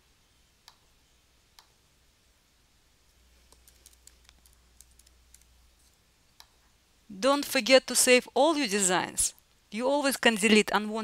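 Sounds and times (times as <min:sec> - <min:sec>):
computer mouse clicks: 0:00.6 - 0:00.9, 0:01.5 - 0:01.8, 0:03.5 - 0:05.5, 0:06.4 - 0:06.6
keyboard typing: 0:03.5 - 0:05.5.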